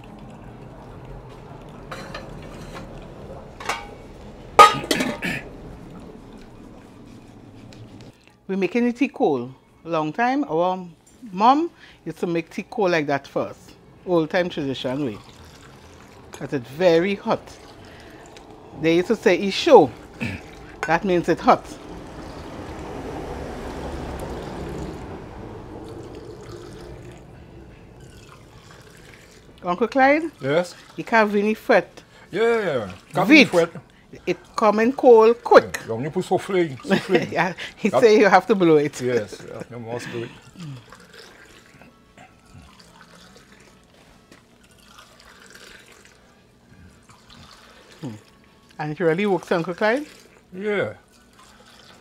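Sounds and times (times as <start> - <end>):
tea pouring between mugs: 14.4 - 22.9, 24.1 - 31.3, 38.8 - 52.0.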